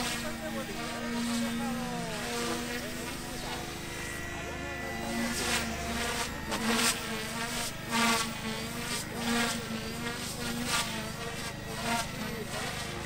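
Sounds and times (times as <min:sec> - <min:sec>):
helicopter rotor buzz: 0:00.0 - 0:13.0.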